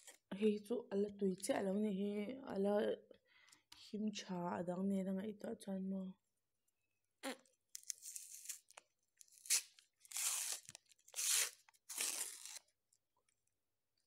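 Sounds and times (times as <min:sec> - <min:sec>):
paper wrapper tearing: 0:07.8 - 0:12.7.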